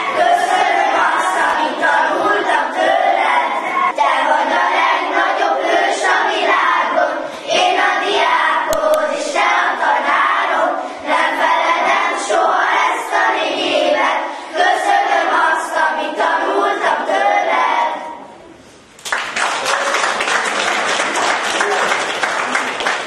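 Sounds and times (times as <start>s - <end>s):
children singing in chorus: 0.0s - 18.2s.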